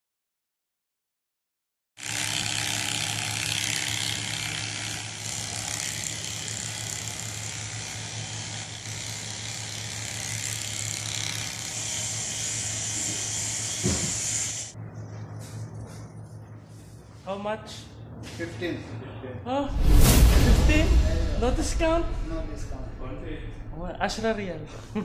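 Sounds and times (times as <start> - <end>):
hair clippers buzzing: 2.0 - 14.7.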